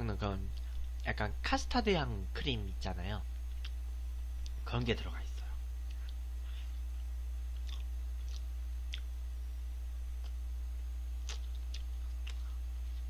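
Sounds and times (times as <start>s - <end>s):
steady low hum: 0.0s - 13.0s
wet mouth clicks chewing: 7.0s - 9.1s, 11.2s - 12.6s.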